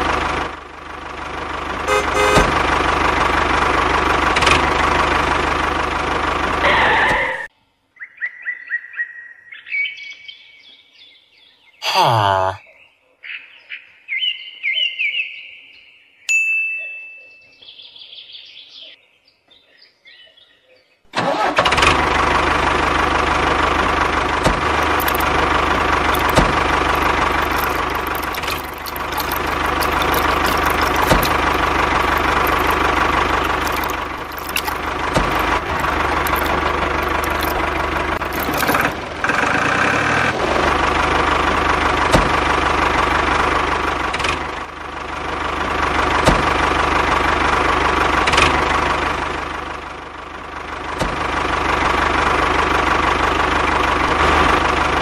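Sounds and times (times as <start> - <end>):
tractor engine chugging: 0.0 - 7.1, 21.2 - 55.0
chirps: 7.9 - 11.9, 12.5 - 21.0.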